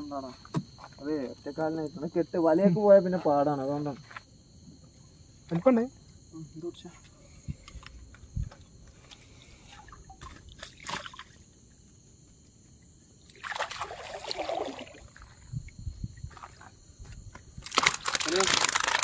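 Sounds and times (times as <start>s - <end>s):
crickets trilling: 0.0s - 19.0s
water splashing off a net: 9.7s - 11.4s, 13.3s - 15.2s, 17.6s - 19.0s.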